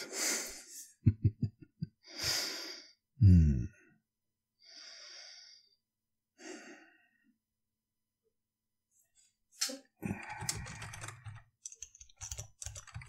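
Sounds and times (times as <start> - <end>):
man breathing: 0.0 - 1.0, 2.0 - 4.0, 4.6 - 5.8, 6.4 - 7.3, 10.0 - 11.2
man murmuring: 3.2 - 3.9.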